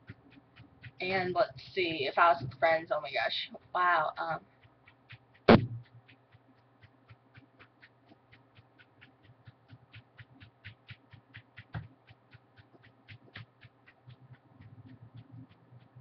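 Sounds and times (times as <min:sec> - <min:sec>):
sneaker tapping against shin: 0:05.1 - 0:06.0.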